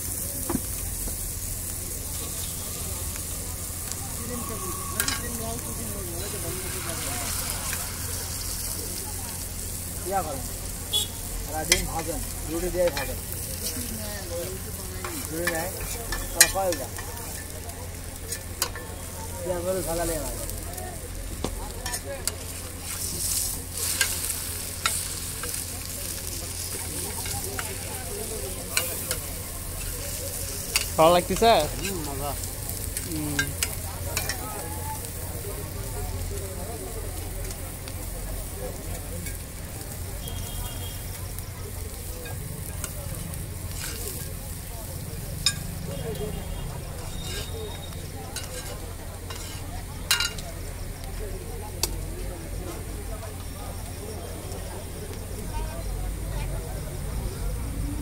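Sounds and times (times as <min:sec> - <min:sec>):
hot oil sizzling on griddle: 0:00.0 - 0:58.0
metal spatula scraping and tapping pan: 0:05.0 - 0:05.3, 0:15.0 - 0:17.5, 0:43.7 - 0:44.3, 0:45.4 - 0:45.7, 0:47.1 - 0:47.7, 0:48.4 - 0:50.4.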